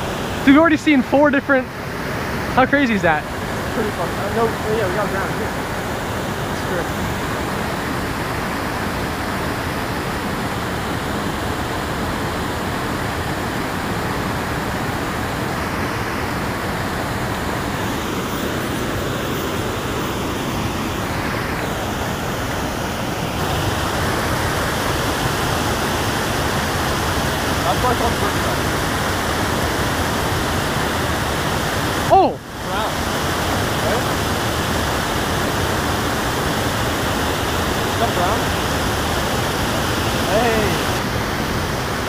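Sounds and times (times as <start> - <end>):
water pouring over waterfall: 23.4 - 42.0.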